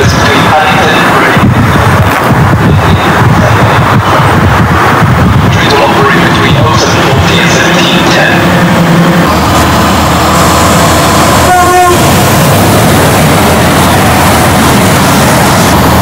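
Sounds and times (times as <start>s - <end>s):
train noise: 0.0s - 16.0s
train horn toot: 11.4s - 12.1s.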